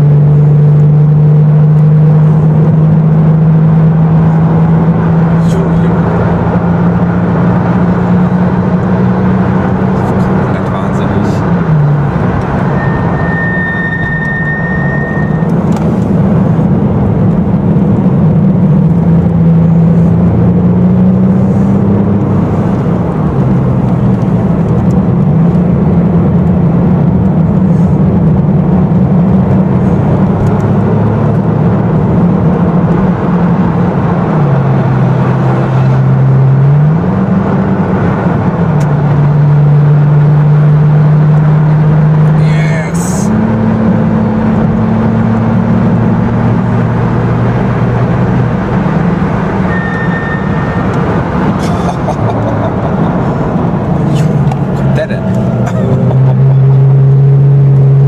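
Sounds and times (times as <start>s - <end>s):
car engine pulling hard: 0.0s - 58.0s
brief high whistle: 12.8s - 15.5s, 49.7s - 50.9s.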